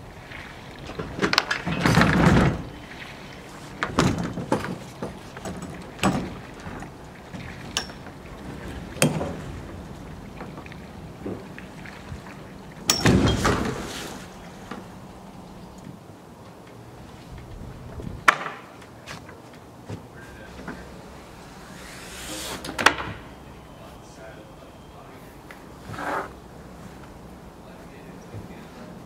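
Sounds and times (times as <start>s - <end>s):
kayak knocking and scraping: 0.0s - 24.3s, 25.0s - 29.0s.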